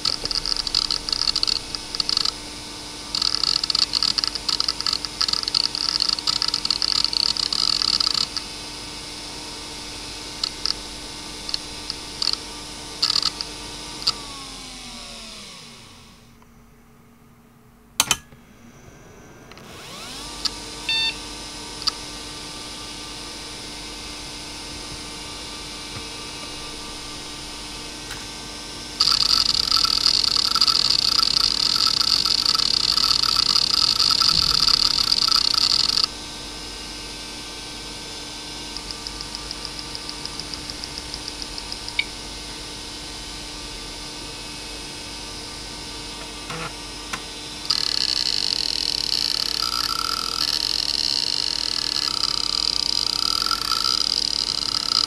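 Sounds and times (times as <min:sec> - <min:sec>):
hard drive head clicks: 0:00.0 - 0:02.4, 0:03.2 - 0:08.4, 0:29.0 - 0:36.1
hard drive seeking buzz: 0:00.0 - 0:55.0
hard drive spinning whine: 0:00.0 - 0:55.0.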